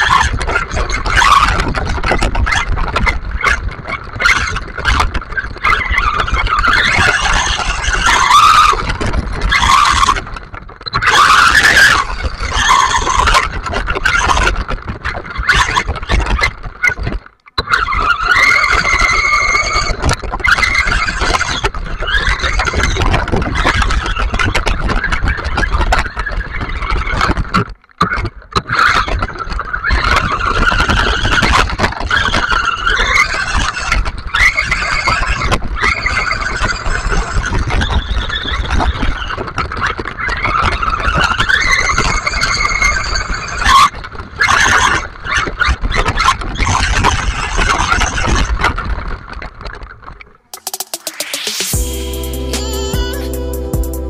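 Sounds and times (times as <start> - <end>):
tyre and wind rumble: 0.0 - 27.5.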